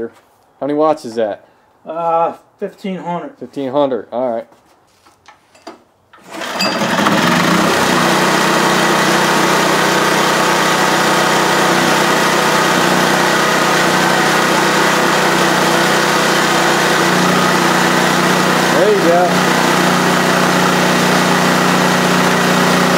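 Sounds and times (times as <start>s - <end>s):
portable generator engine running: 6.2s - 22.9s.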